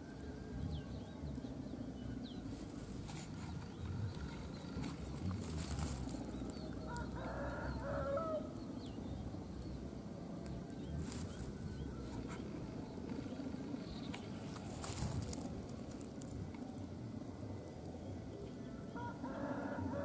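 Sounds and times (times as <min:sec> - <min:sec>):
steady low rumble: 0:00.2 - 0:18.9.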